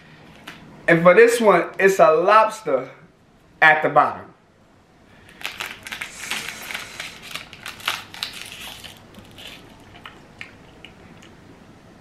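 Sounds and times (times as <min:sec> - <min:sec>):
plastic wrapper crinkling: 0:05.2 - 0:10.9.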